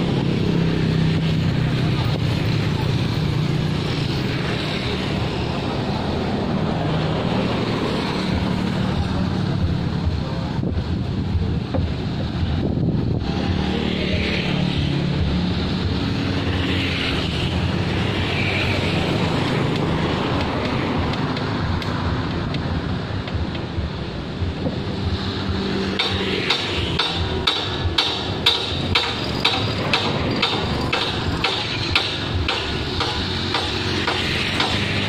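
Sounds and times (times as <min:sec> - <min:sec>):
motorbike engines: 0:00.0 - 0:35.0
road traffic rumble: 0:00.0 - 0:35.0
wind on microphone: 0:09.5 - 0:13.8.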